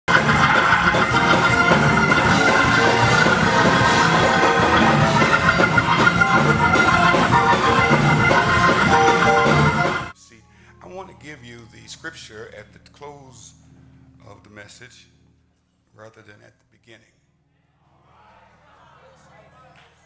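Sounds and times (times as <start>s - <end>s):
loud instrumental music with beat: 0.0s - 10.1s.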